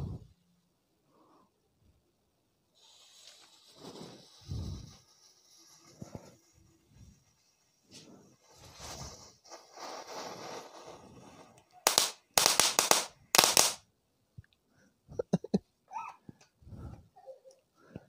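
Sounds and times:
firecracker fizzing: 0:02.8 - 0:06.0, 0:11.8 - 0:13.8
firecracker loud rapid cracks: 0:11.9 - 0:13.8.

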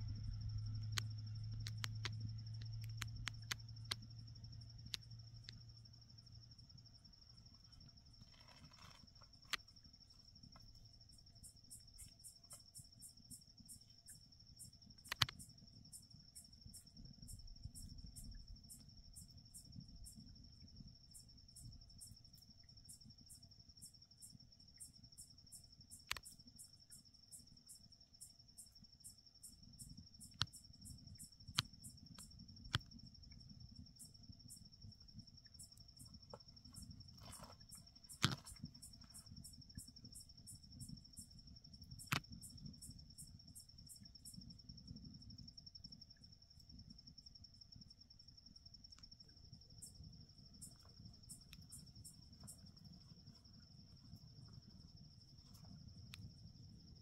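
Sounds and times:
low hum: 0:00.0 - 0:08.1
crickets trilling: 0:00.0 - 0:57.0
sharp clicks: 0:00.9 - 0:04.1, 0:15.0 - 0:15.4.

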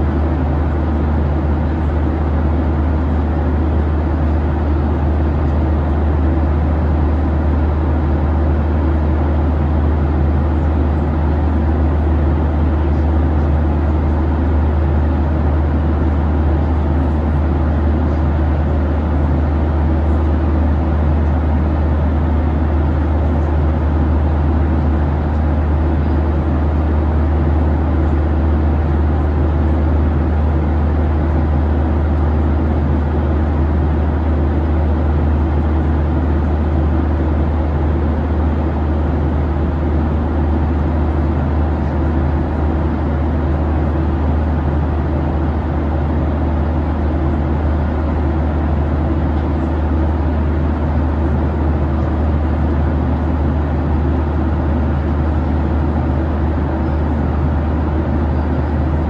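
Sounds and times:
airliner cabin engine drone: 0:00.0 - 0:59.0.

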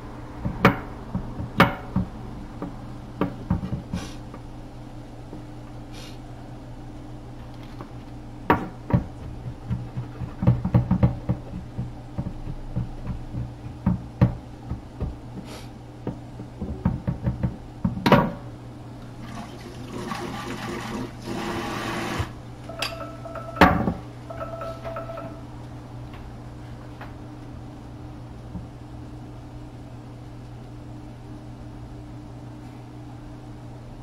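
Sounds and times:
constant low hum: 0:00.0 - 0:19.9, 0:22.3 - 0:34.0
short steady tones: 0:22.7 - 0:25.6.

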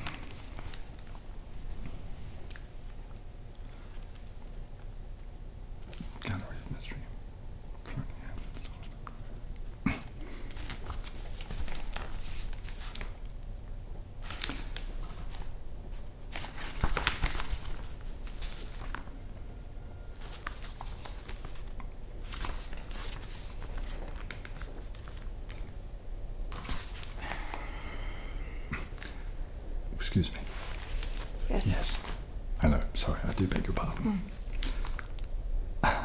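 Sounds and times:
newspaper rustling and crinkling: 0:10.5 - 0:13.2, 0:14.2 - 0:19.1, 0:20.2 - 0:25.7, 0:30.4 - 0:31.4.

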